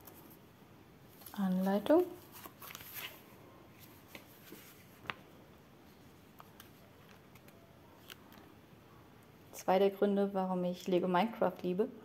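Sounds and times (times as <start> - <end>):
pages rustling: 1.1 - 5.2
faint ticks of pages turning: 2.3 - 3.2, 4.1 - 5.2, 6.3 - 8.5.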